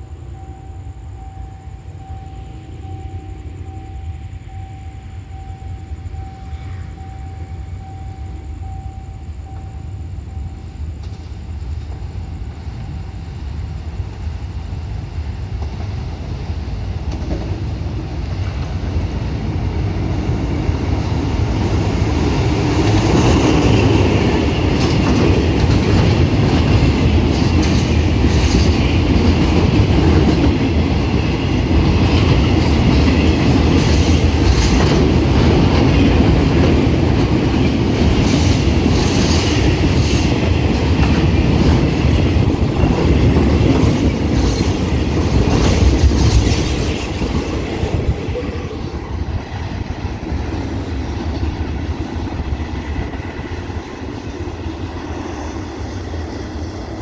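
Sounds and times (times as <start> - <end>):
freight train wheels rumbling: 0.0 - 57.0
wheels clickety-clack on rail joints: 13.9 - 57.0.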